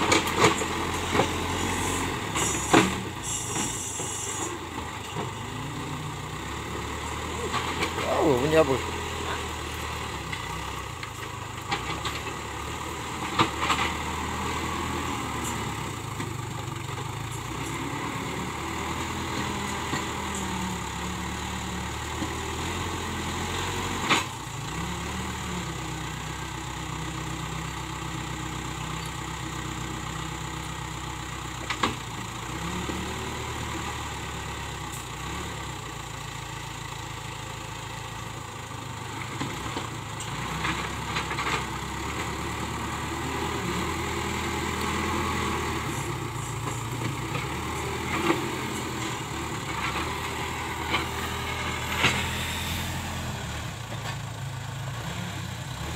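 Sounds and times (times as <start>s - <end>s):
diesel engine running: 0.0s - 55.9s.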